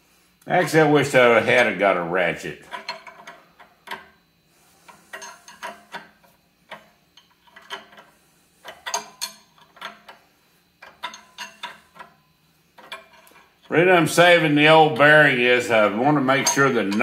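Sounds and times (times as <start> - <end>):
wrench clicking and clinking: 2.7 - 4.0, 5.1 - 6.1, 8.6 - 10.2, 10.8 - 12.2, 16.3 - 17.0.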